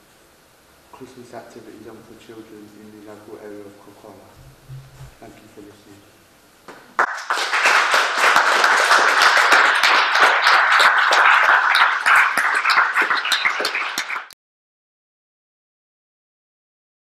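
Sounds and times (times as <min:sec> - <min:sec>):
audience applauding: 0:07.0 - 0:14.4.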